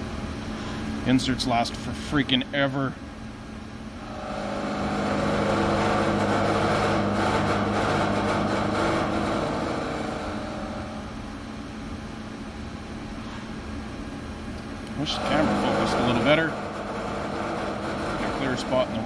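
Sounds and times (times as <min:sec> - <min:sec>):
milling machine cutting metal: 0:04.0 - 0:11.1, 0:15.0 - 0:19.0.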